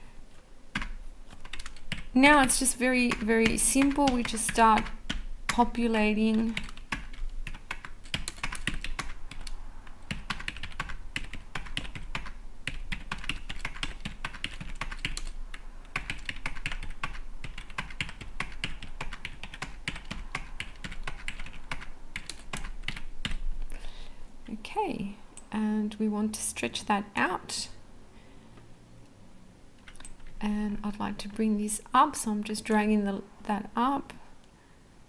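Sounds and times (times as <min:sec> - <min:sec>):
faint low hum: 0:00.0 - 0:35.0.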